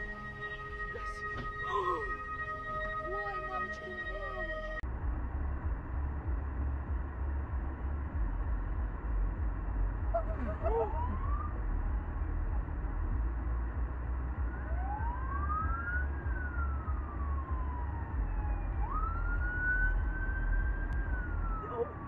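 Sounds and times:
police siren wailing: 0:00.0 - 0:04.8, 0:10.1 - 0:11.8, 0:14.3 - 0:22.0
low steady rumble: 0:00.0 - 0:22.0.

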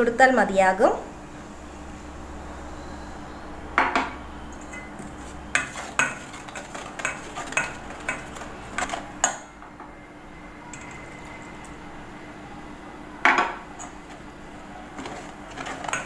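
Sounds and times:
spatula scraping a steel bowl: 0:04.5 - 0:09.1, 0:14.9 - 0:16.0.

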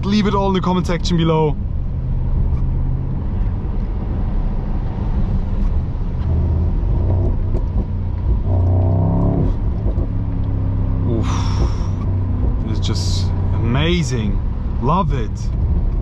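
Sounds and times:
car engine running: 0:00.0 - 0:16.0.

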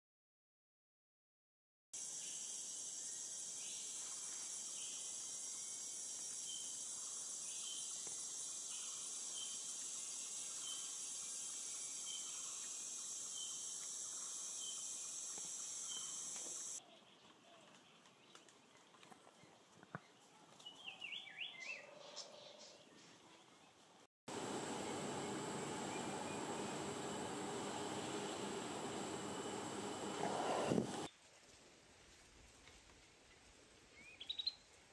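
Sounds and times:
insect shrill drone: 0:02.0 - 0:16.8.

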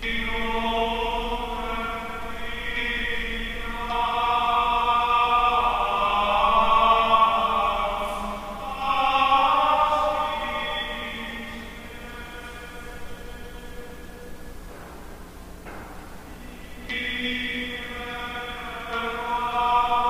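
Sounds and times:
slow church chant: 0:00.0 - 0:20.0.

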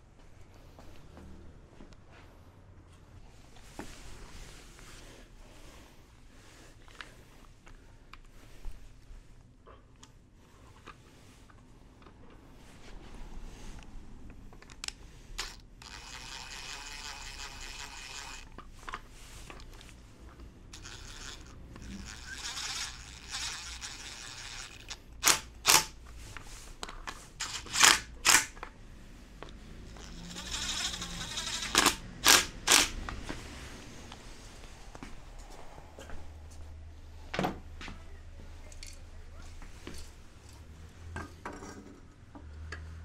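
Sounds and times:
cordless drill driving screws: 0:15.4 - 0:18.6, 0:20.8 - 0:26.0, 0:27.4 - 0:28.6, 0:29.9 - 0:33.0.

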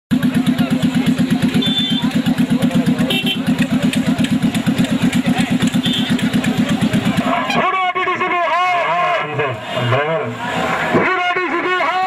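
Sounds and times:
van engine idling: 0:00.1 - 0:12.0.

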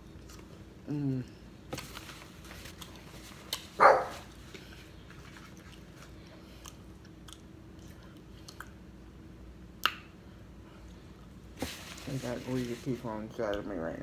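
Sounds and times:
chewing: 0:04.4 - 0:08.8.

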